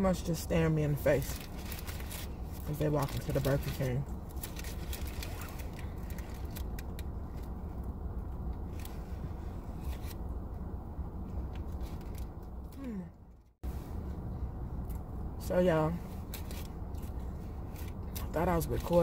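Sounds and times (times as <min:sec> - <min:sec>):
paper wrapper crackling: 0:01.2 - 0:07.5.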